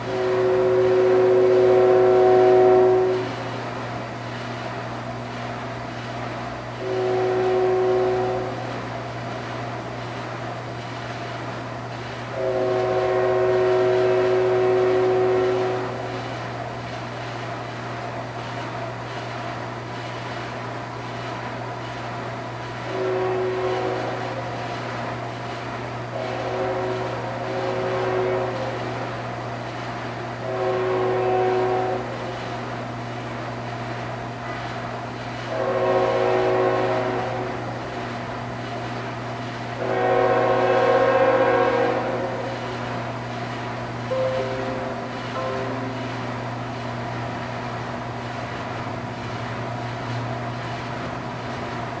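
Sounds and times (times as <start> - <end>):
locomotive air horn blast: 0.0 - 3.5, 6.8 - 8.8, 12.3 - 16.2, 22.9 - 24.5, 26.1 - 29.0, 30.4 - 32.3, 35.5 - 37.7, 39.8 - 42.6, 44.1 - 46.4
steady low hum: 0.0 - 51.2.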